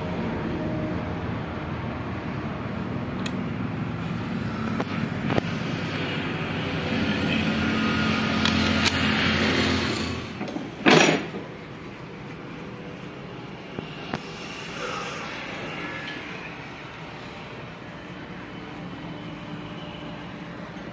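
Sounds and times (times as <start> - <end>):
loud rush of noise: 0.0 - 20.7
engine hum: 0.0 - 20.9.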